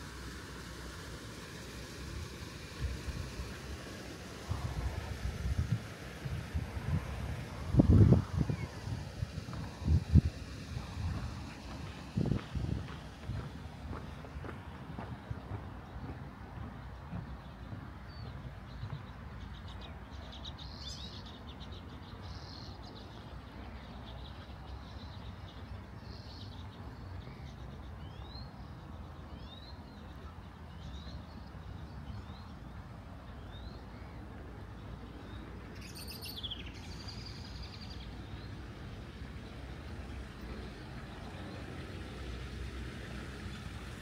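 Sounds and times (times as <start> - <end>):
small birds chirping: 14.9 - 38.7.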